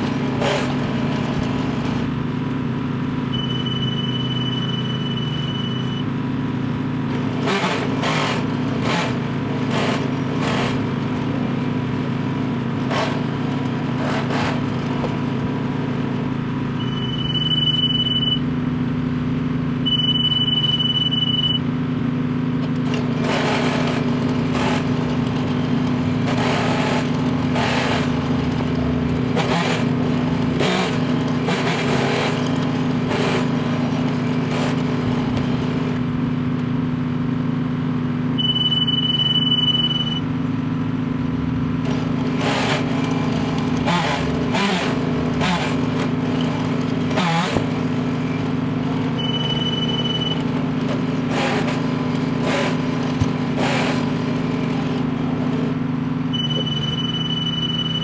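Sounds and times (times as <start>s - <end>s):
engine running: 0.0s - 58.0s
high tone: 3.3s - 6.1s, 16.8s - 18.6s, 19.8s - 21.7s, 38.4s - 40.4s, 49.1s - 50.5s, 56.3s - 58.0s.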